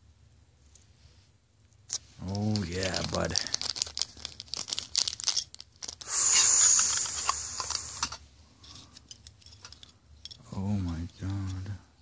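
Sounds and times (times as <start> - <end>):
plastic bag crinkling and tearing: 2.3 - 8.2.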